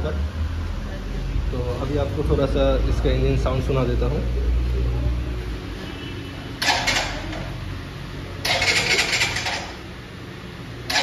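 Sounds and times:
electric starter cranking engine: 6.6s - 7.5s, 8.4s - 9.8s.

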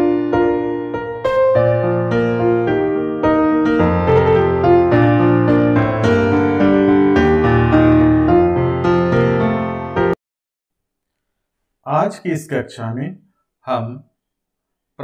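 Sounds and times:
keyboard music: 0.0s - 10.2s.

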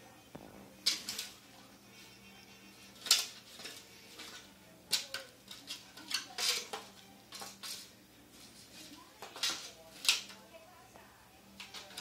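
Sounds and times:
bowl clattering on tile floor: 3.0s - 7.9s.

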